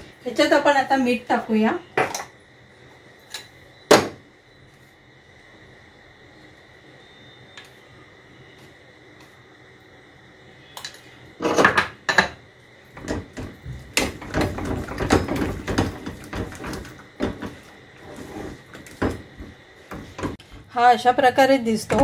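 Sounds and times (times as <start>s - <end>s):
loud clattering knocks: 13.0s - 17.6s.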